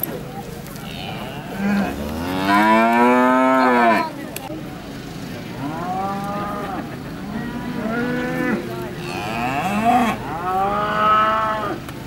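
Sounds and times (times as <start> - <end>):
cattle mooing: 0.9 - 4.1, 5.6 - 11.8.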